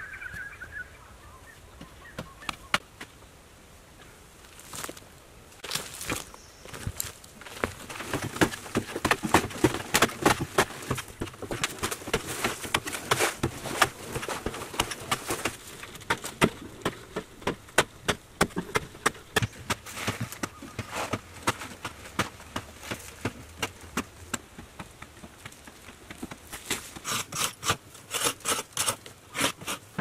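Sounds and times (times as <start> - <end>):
hand tool scraping soil: 5.6 - 17.6, 18.4 - 24.1, 26.1 - 30.0.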